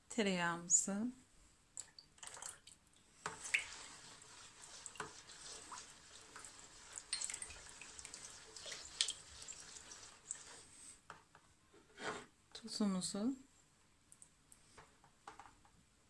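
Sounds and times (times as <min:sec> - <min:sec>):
liquid pouring into bowl: 0:02.2 - 0:10.6
spatula stirring liquid: 0:02.2 - 0:11.2.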